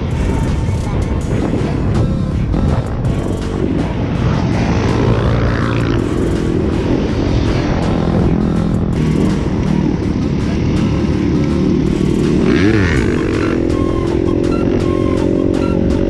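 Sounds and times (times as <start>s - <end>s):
dirt bike engines running: 0.0s - 16.0s
wind buffeting microphone: 0.0s - 16.0s
engine revving sharply: 7.6s - 16.0s.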